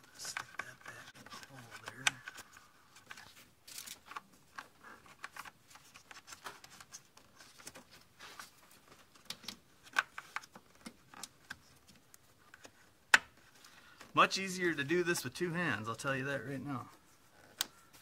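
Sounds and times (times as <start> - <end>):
rubber hose clicks and scrapes: 0.0 - 14.2.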